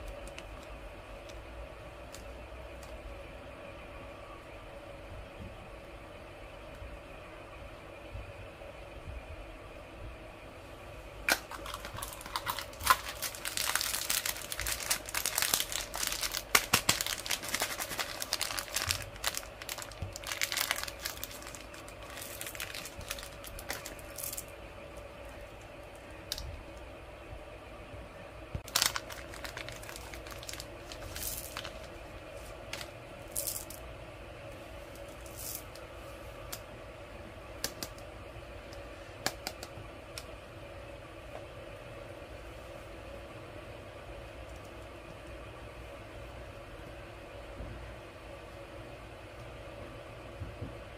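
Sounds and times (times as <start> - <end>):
plastic wrapper crinkling and tearing: 11.3 - 24.5, 28.6 - 32.0.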